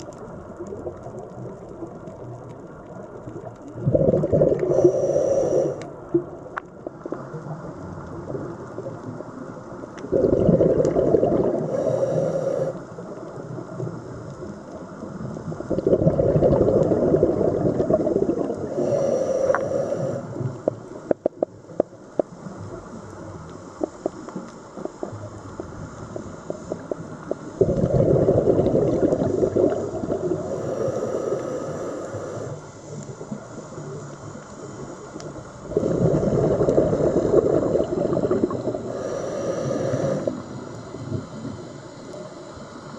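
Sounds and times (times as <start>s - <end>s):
exhaled bubbles underwater: 0.0s - 42.3s
regulator hiss: 4.5s - 6.1s, 11.4s - 15.8s, 18.3s - 27.6s, 28.5s - 42.9s.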